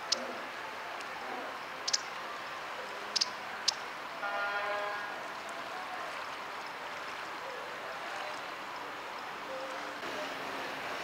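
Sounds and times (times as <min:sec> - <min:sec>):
urban traffic ambience: 0:00.0 - 0:11.0
vehicle horn toot: 0:04.2 - 0:05.2.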